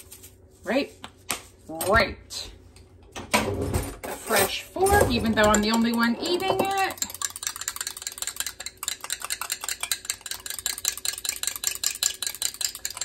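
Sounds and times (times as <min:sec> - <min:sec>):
fork whisking in container: 0:04.3 - 0:13.0.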